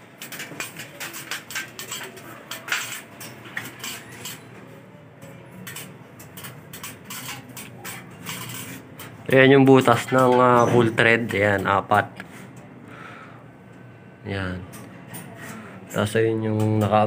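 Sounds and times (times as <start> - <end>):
hard objects clinking together: 0.1 - 9.3.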